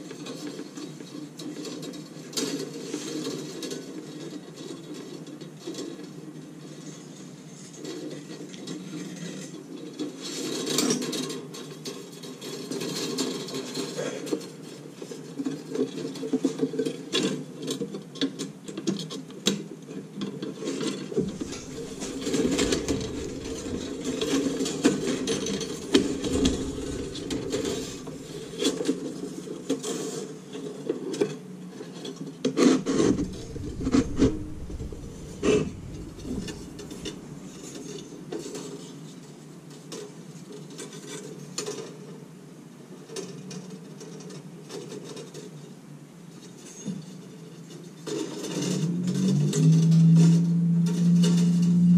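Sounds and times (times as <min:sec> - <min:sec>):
wire scraping against metal frame: 0:21.2 - 0:29.2, 0:32.6 - 0:38.5, 0:48.1 - 0:51.9.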